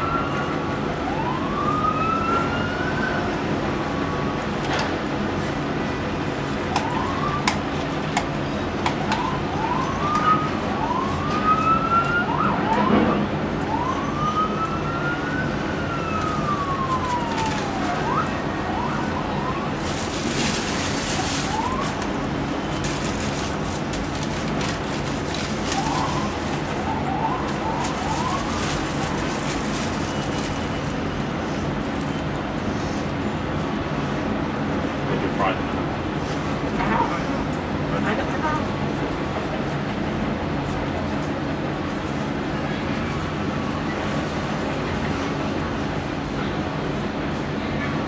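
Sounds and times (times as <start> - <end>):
diesel engine hum: 0.0 - 48.0
siren yelping: 6.7 - 7.5, 9.0 - 19.8, 21.4 - 22.2, 25.7 - 29.1.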